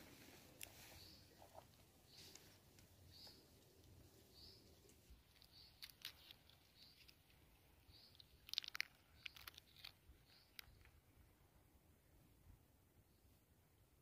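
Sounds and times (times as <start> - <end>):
bird chirps: 0.8 - 2.5, 3.1 - 3.5, 4.3 - 7.2, 7.8 - 10.9.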